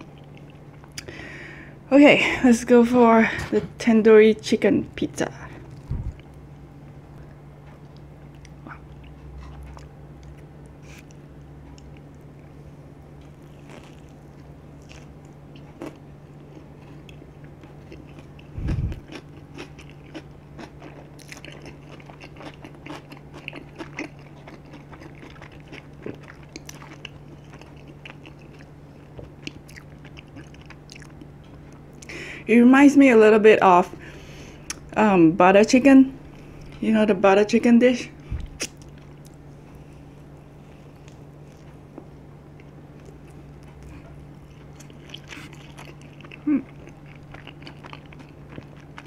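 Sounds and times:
chewing crunchy food: 0.0s - 1.1s, 7.2s - 32.1s, 38.2s - 49.0s.

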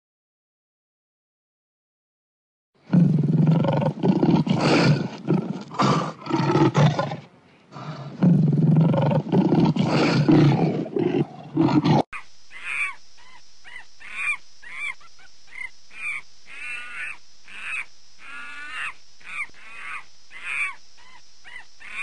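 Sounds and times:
lion roaring: 2.9s - 7.2s, 7.8s - 12.0s.

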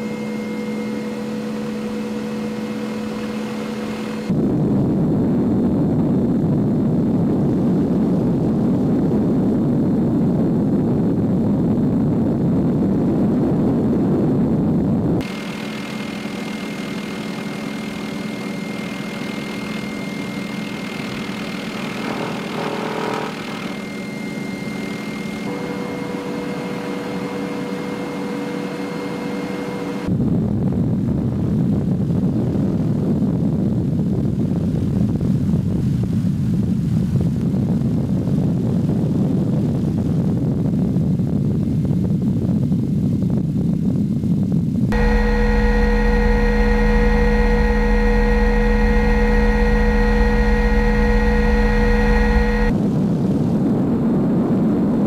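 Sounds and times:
helicopter engine and rotor: 0.0s - 4.5s, 15.2s - 30.1s, 44.9s - 52.8s.

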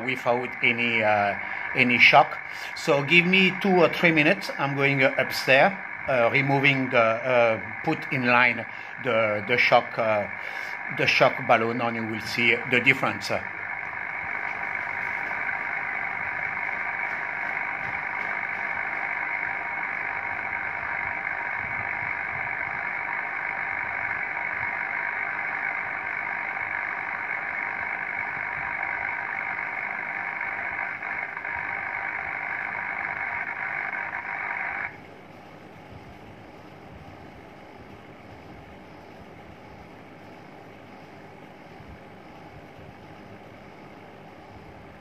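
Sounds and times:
radio static hiss: 0.0s - 35.1s
faint steady radio tones: 0.0s - 45.0s.

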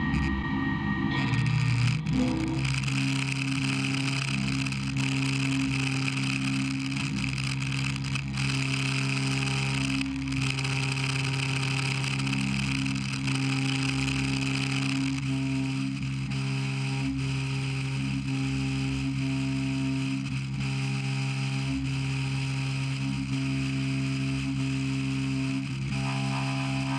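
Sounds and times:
milling machine cutting metal: 0.0s - 15.2s.

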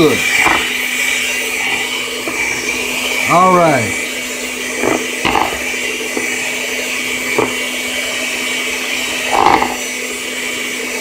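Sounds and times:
electric hand mixer whirring: 0.0s - 11.0s.

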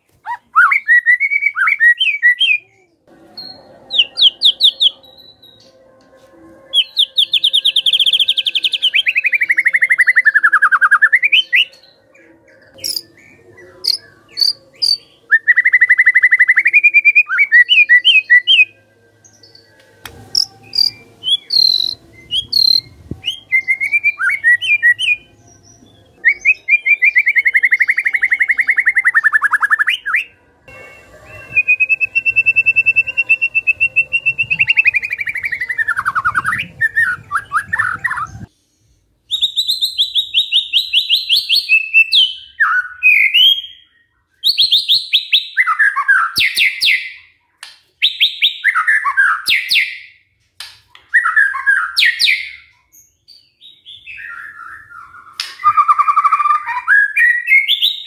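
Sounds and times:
short sharp whistled notes: 30.2s - 38.4s.

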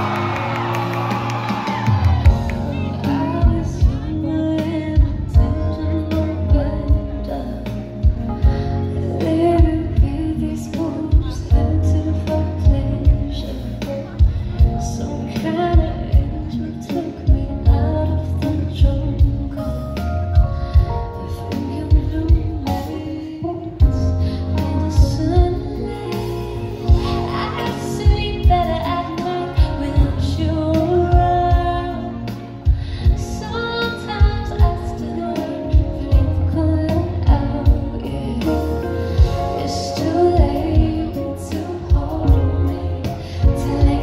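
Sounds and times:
woman singing over band: 20.6s - 44.0s.

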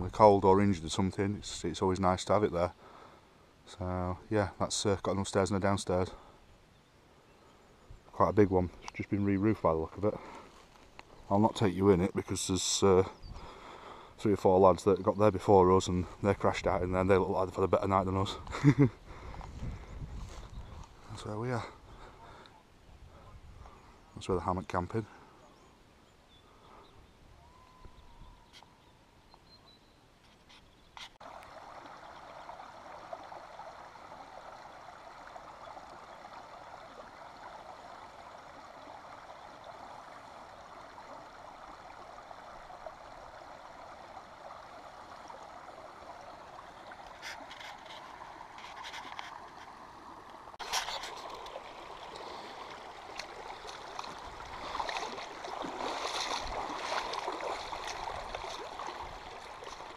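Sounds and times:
footsteps on wet stones: 10.4s - 11.2s, 50.6s - 59.9s
stream babbling over stones: 31.2s - 59.9s.

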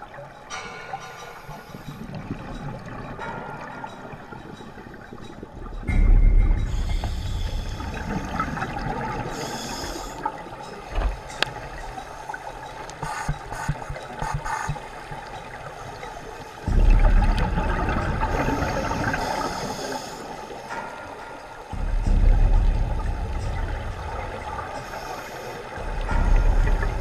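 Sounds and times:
exhaled bubbles rumbling: 2.0s - 11.9s, 16.6s - 19.7s, 25.7s - 27.0s
regulator hissing inhale: 6.7s - 8.4s, 9.3s - 10.3s, 18.5s - 20.5s, 24.8s - 25.8s.

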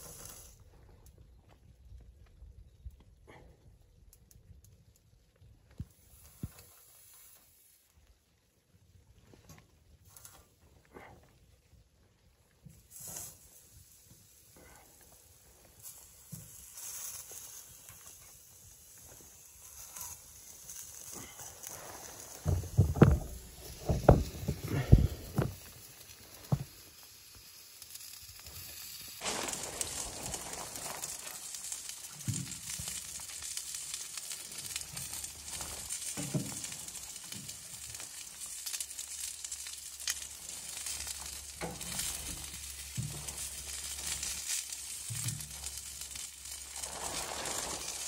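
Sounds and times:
chicken wings sizzling: 0.0s - 0.6s, 12.8s - 48.0s.

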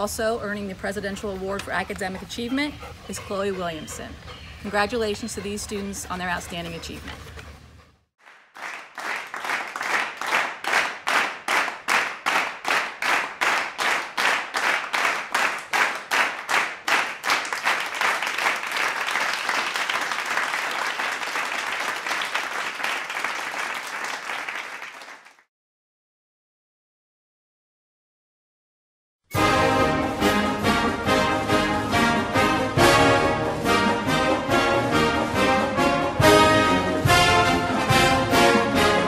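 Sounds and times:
crowd applause: 8.2s - 25.4s
crowd clapping in unison: 8.2s - 25.5s.

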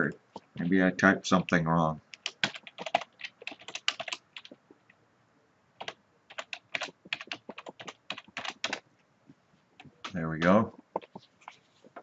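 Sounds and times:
keyboard typing: 2.1s - 4.6s, 5.8s - 8.8s.

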